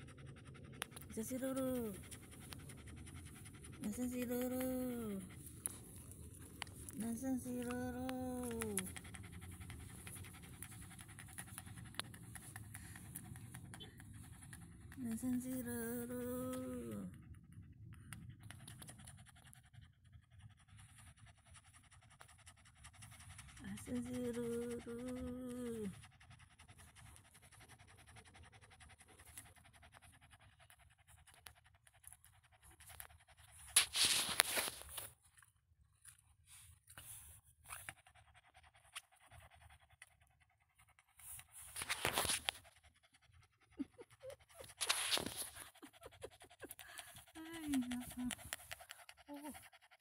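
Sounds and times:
low steady rumble: 0.0 - 33.7
dog panting: 0.0 - 35.5, 36.1 - 50.0
rustling and scraping: 33.6 - 37.8, 41.2 - 42.7, 44.6 - 45.9.

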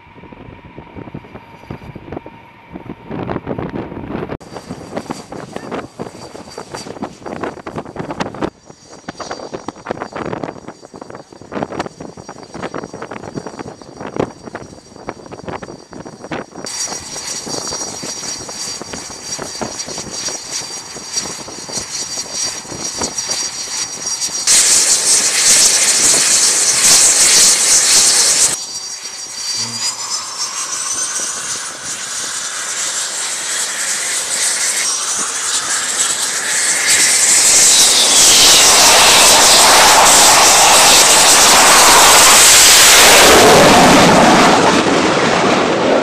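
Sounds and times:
jet engine whining: 0.0 - 46.0
loud hissing rush: 24.4 - 28.8, 29.4 - 45.2.

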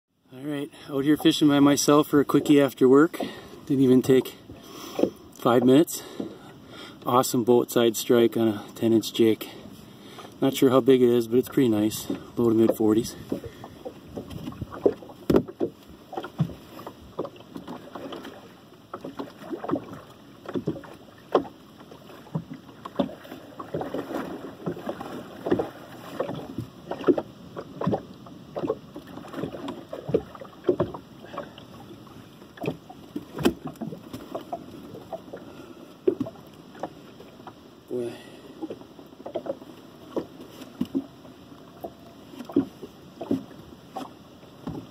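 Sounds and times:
water splashing against boat: 0.2 - 44.9
knocks and thumps on hull: 11.8 - 31.7, 32.6 - 37.0, 41.8 - 44.9.

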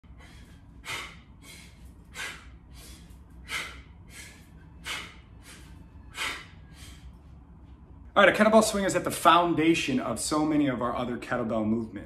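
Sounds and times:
man breathing out forcefully: 0.0 - 7.2
soft breaths: 0.1 - 7.8.

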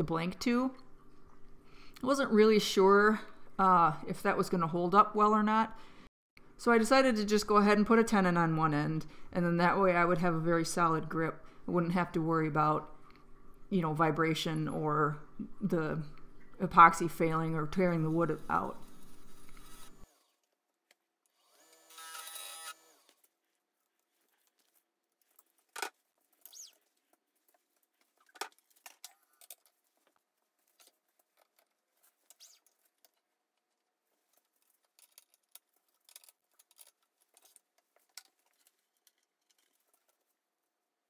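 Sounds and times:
wood lathe running: 21.5 - 23.1.

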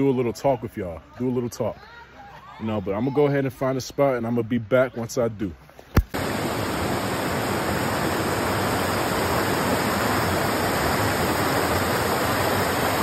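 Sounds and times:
creek water rushing over rocks: 6.0 - 13.0.

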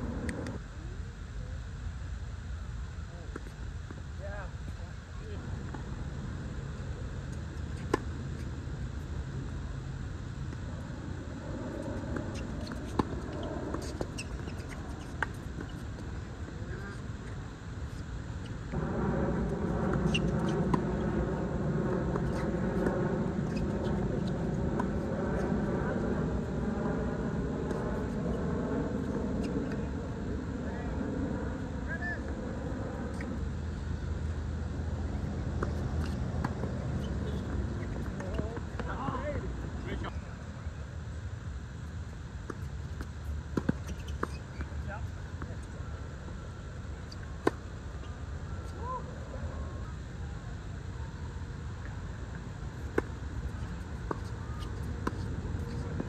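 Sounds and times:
sneakers squeaking on court: 11.8 - 17.0, 19.9 - 21.1, 43.6 - 44.8
low rumble: 18.7 - 38.8.

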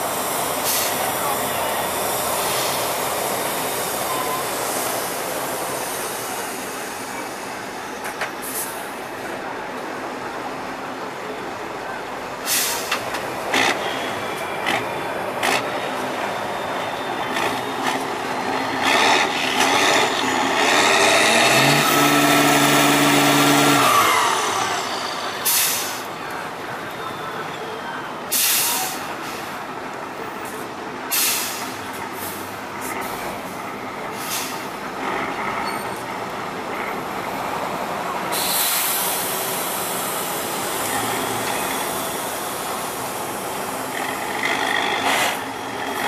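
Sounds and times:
diesel truck engine labouring: 0.0 - 46.0
air hisses: 38.3 - 40.9.

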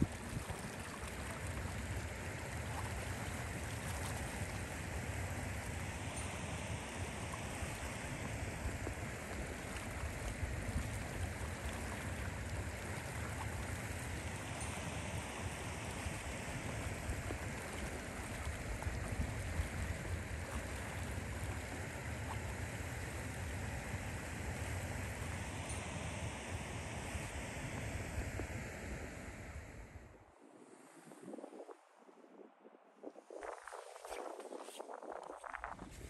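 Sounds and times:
low fluttering rumble: 0.0 - 6.2, 6.8 - 25.8.

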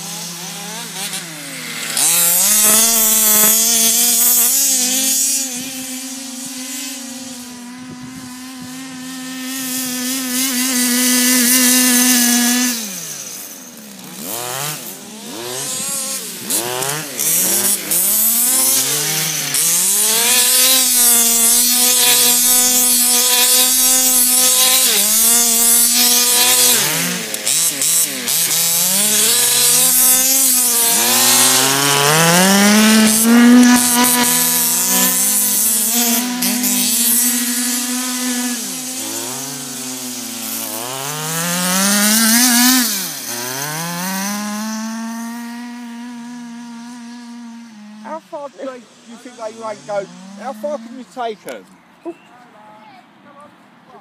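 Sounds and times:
rc buggy two-stroke engine revving: 0.0 - 51.8.

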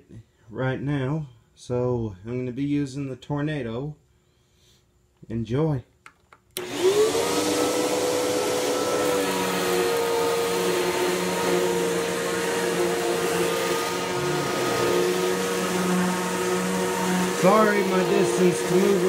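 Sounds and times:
vacuum cleaner motor whining: 6.6 - 19.0.

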